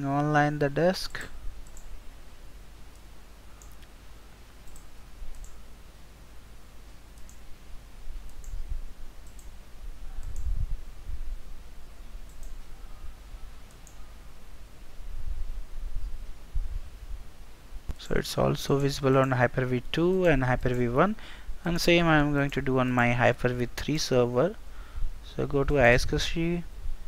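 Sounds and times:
computer mouse clicks: 1.6s - 1.9s, 2.9s - 4.0s, 4.6s - 5.6s, 6.9s - 7.4s, 8.3s - 8.6s, 9.2s - 9.5s, 10.2s - 10.6s, 12.3s - 12.8s, 13.7s - 14.1s.

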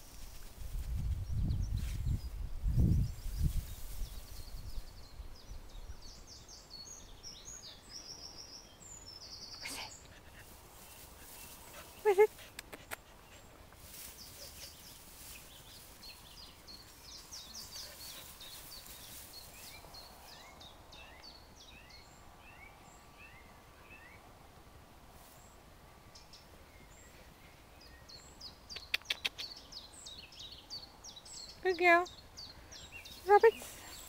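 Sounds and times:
rustle of long grass: 0.0s - 5.9s, 9.9s - 20.6s, 25.0s - 27.9s, 33.0s - 34.0s
brushing crackles: 10.4s - 16.4s.

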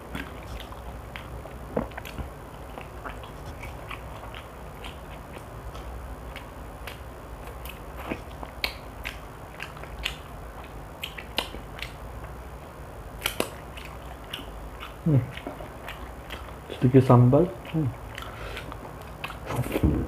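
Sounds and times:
person chewing chicken off bone: 0.0s - 12.4s, 13.2s - 20.0s
person humming: 15.0s - 15.4s.

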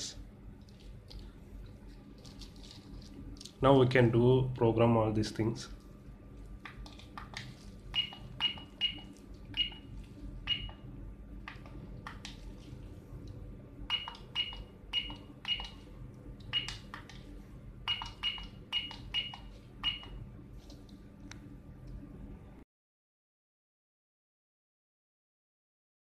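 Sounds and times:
security keypad beeping: 7.9s - 9.9s, 10.5s - 10.8s, 13.9s - 15.8s, 16.5s - 16.9s, 17.9s - 20.2s.

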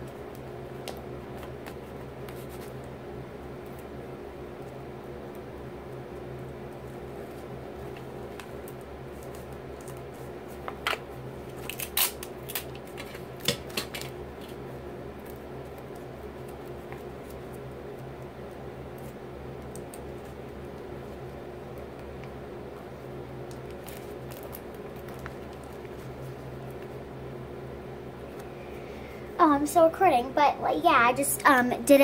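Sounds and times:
paper snips and crackles: 7.2s - 14.6s.

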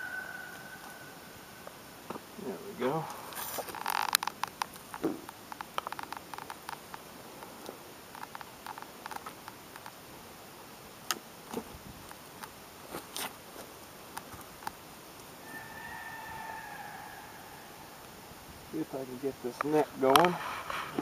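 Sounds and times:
rustling: 1.6s - 10.0s, 11.0s - 15.4s, 18.0s - 21.0s
skin crackles and clicks: 1.6s - 10.1s, 10.9s - 15.4s.

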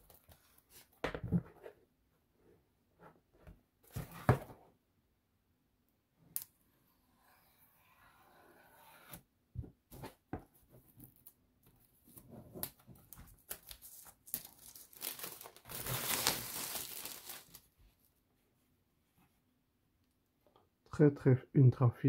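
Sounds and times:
plastic wrapping crinkling: 13.4s - 17.7s.

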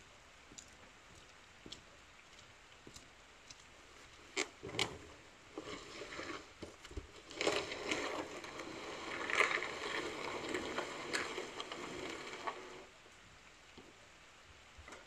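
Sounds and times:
shovel scraping wet concrete: 7.2s - 12.9s.

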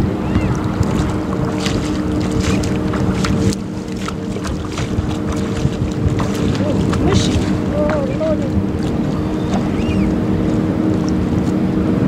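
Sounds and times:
low engine hum: 0.0s - 12.0s
wind rumbling on microphone: 0.0s - 12.0s
faint high bird chirps: 9.2s - 10.2s.

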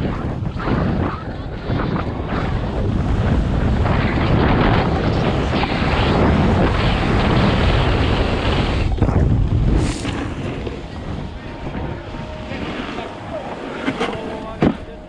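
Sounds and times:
wind buffeting microphone: 0.0s - 15.0s
snowboard edge scraping snow: 3.4s - 11.6s, 12.4s - 14.6s.

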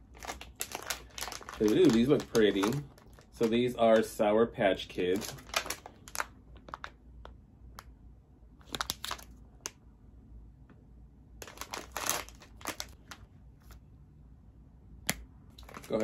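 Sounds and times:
plastic pouch crinkling: 0.0s - 4.2s, 5.0s - 7.0s, 8.6s - 9.4s, 11.4s - 13.2s, 15.6s - 16.0s
plastic pouch tearing open: 0.2s - 4.1s, 5.1s - 6.9s, 8.6s - 9.3s, 11.4s - 13.0s.

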